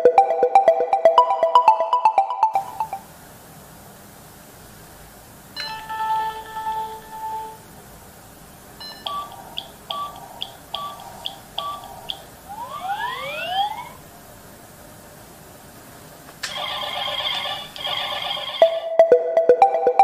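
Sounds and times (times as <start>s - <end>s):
held electronic tone: 5.6s - 7.6s, 8.8s - 14.0s
rapid short beeps: 8.8s - 12.3s.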